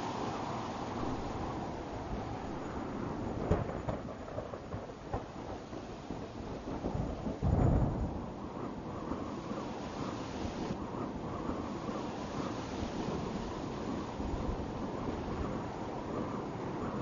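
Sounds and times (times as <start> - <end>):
water rushing: 0.0 - 3.3
wind: 0.0 - 17.0.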